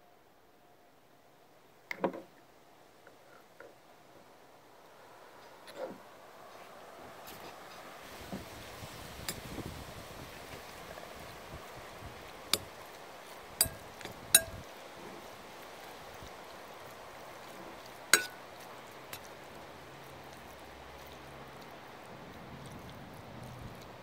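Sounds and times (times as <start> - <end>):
metal spoon clinking ceramic bowl: 13.6 - 14.6, 18.2 - 18.4.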